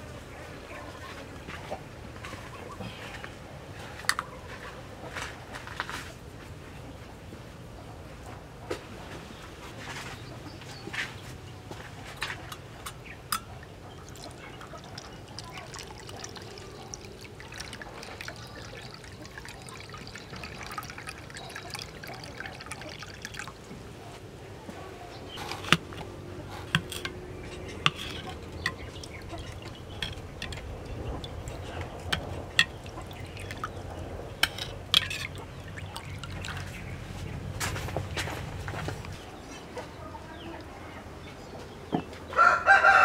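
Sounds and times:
ladle stirring broth: 12.4s - 24.0s, 25.3s - 38.1s
metal clinking on ceramic: 12.5s - 23.4s, 26.6s - 36.6s
water pouring into bowl: 13.3s - 23.8s, 27.6s - 36.9s.

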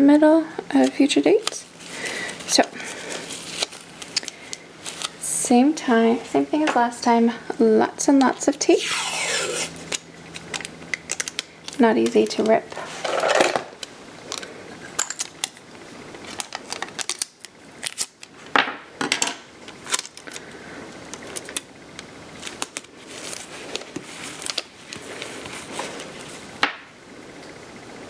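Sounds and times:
tape crinkling and rustling: 0.7s - 5.3s, 8.2s - 18.6s, 19.4s - 26.5s.

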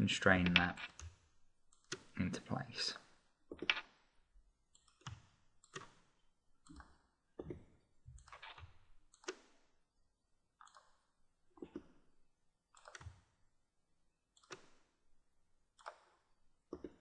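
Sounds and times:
computer mouse clicks: 0.4s - 2.2s, 2.9s - 4.0s, 4.7s - 7.6s, 8.2s - 9.6s, 12.8s - 13.3s, 14.4s - 14.9s, 15.8s - 17.0s.

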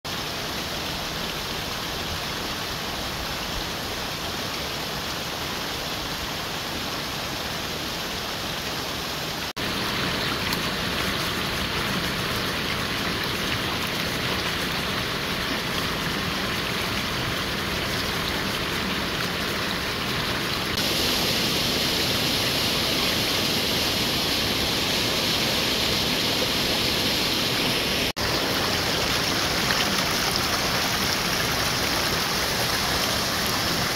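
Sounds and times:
mountain stream over rocks: 0.1s - 33.9s.

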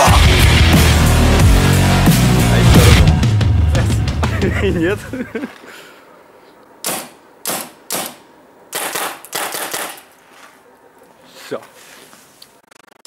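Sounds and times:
hissing paintball shots: 6.8s - 10.1s
paintball marker shots: 6.8s - 10.1s.

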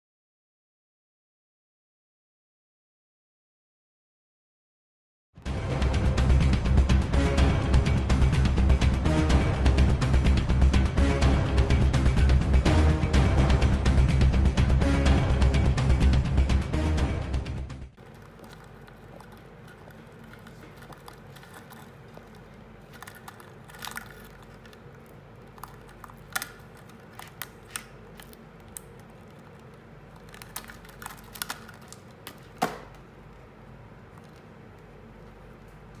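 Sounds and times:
music: 5.4s - 18.0s
beetle claws clicking on wood: 18.0s - 33.0s.

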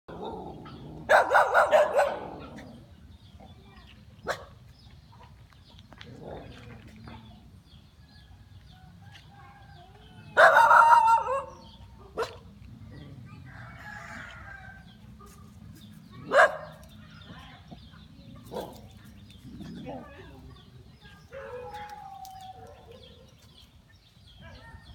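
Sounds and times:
rooster crowing: 13.5s - 14.8s.

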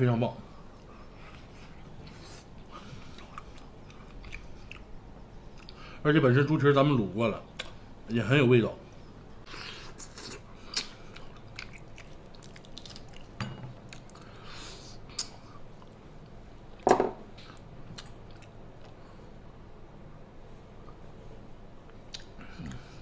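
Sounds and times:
person chewing: 1.2s - 5.8s, 9.4s - 16.0s, 22.1s - 23.0s.

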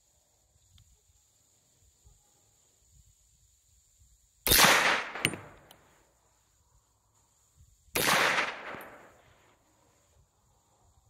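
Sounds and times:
rifle shot echoing: 4.5s - 5.7s, 8.0s - 9.2s.

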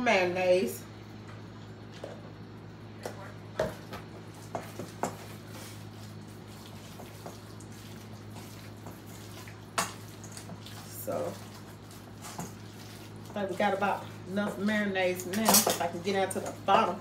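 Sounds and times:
steady low hum: 0.0s - 17.0s
soft wet sounds: 4.3s - 14.7s.

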